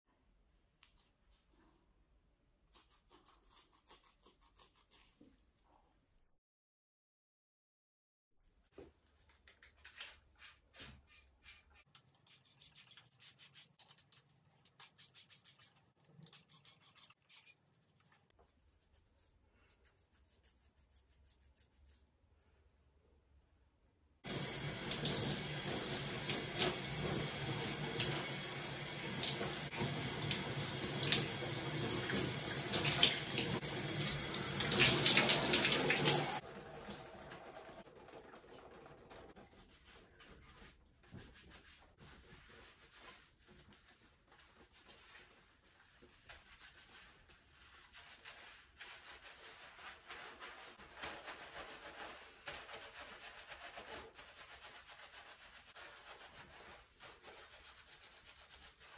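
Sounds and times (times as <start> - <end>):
hands rubbing lather through hair: 9.2 - 22.1, 29.1 - 36.4, 39.5 - 58.9
shower water splashing: 24.2 - 40.1.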